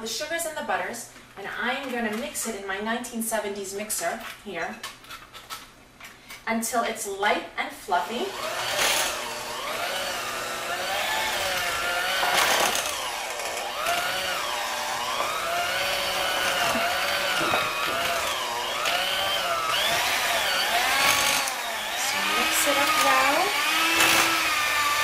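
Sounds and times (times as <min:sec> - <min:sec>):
electric hand mixer running: 0:08.2 - 0:25.0.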